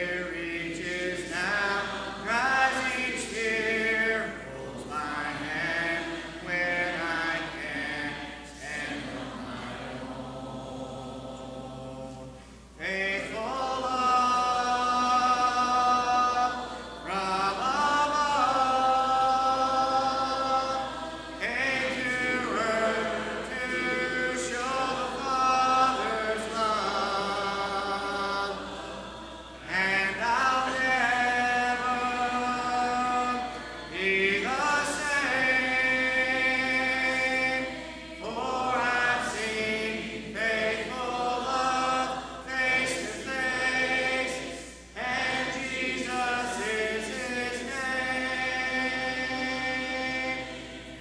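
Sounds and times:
congregation singing a hymn: 0:00.0 - 0:51.0.

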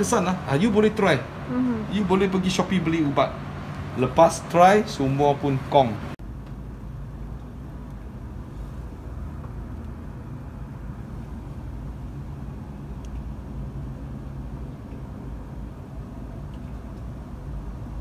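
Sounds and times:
low mechanical hum in car cabin: 0:00.0 - 0:18.0.

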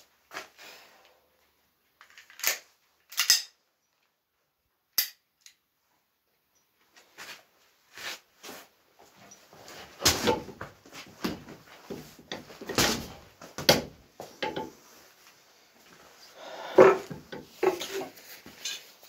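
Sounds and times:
punching bag thuds: 0:12.6 - 0:14.0.

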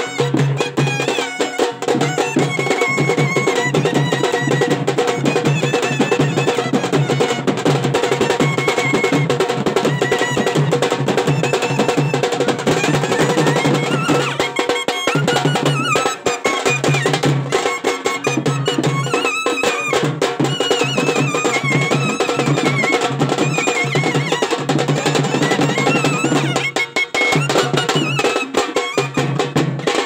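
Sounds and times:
loud fast drumming: 0:00.0 - 0:30.0
clarinet wavering melody: 0:11.4 - 0:29.5.

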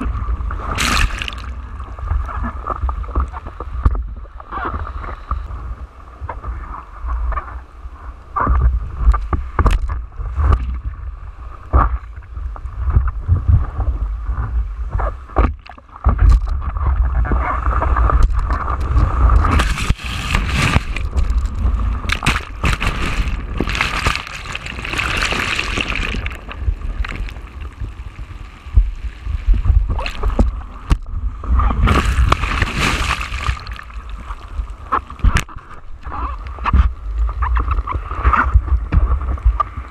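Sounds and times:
waves splashing against surfboard: 0:00.0 - 0:05.5, 0:08.4 - 0:39.9
constant low rumble: 0:00.0 - 0:39.9
breaking whitewater rushing: 0:31.8 - 0:34.4.

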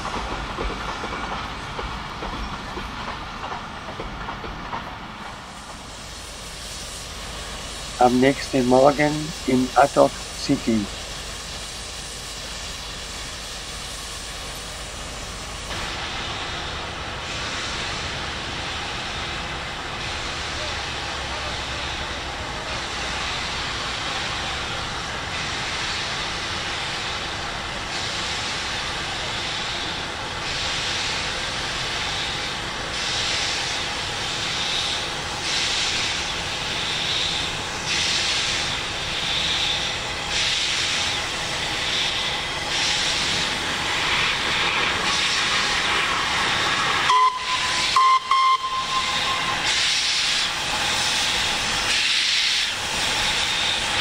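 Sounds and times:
steam hissing: 0:00.0 - 0:54.0
steam locomotive exhaust beats: 0:00.0 - 0:54.0
steam whistle blast: 0:47.0 - 0:50.2.

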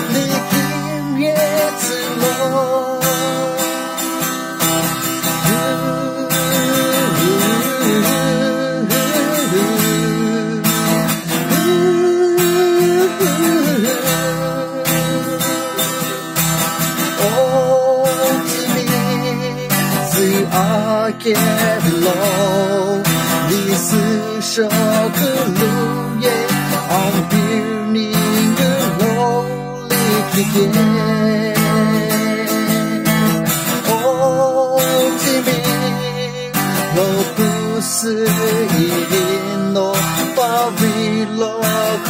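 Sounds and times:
man singing with vibrato: 0:00.0 - 0:42.0
strummed acoustic guitar: 0:00.0 - 0:42.0.

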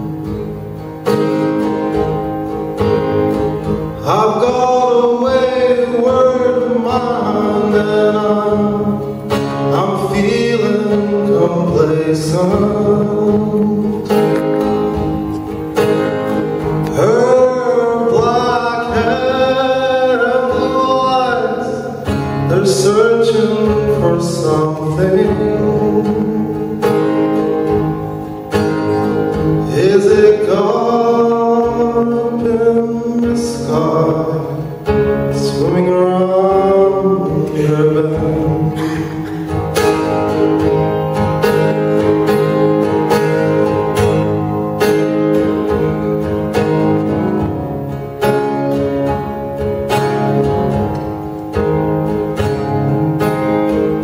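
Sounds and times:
acoustic guitar strumming: 0:00.0 - 0:54.0
man singing: 0:04.0 - 0:14.4, 0:16.8 - 0:27.2, 0:29.6 - 0:40.8.

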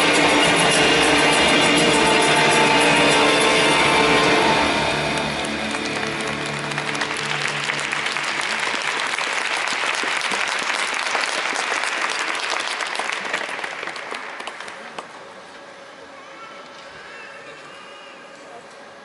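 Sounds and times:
closing music: 0:00.0 - 0:09.9
audience applauding: 0:00.0 - 0:15.0.

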